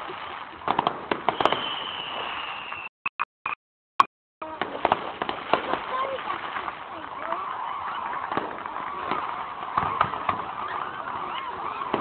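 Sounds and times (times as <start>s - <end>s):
distant fireworks cracks and bangs: 0.0s - 2.9s, 4.4s - 12.0s
firework whistle: 1.1s - 3.0s, 7.2s - 12.0s.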